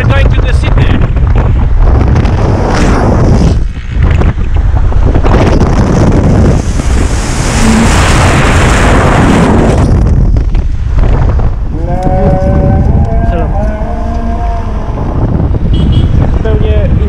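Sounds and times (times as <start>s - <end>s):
tyre noise on road: 0.0s - 17.0s
wind buffeting microphone: 0.0s - 17.0s
truck engine: 3.6s - 11.7s.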